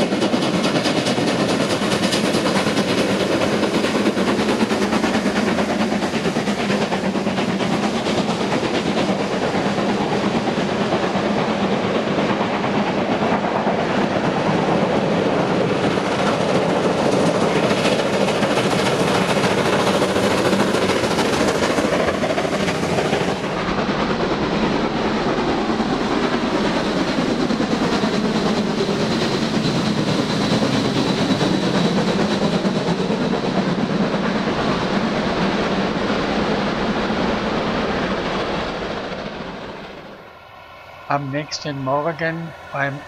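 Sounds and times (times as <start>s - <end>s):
steam locomotive running: 0.0s - 43.0s.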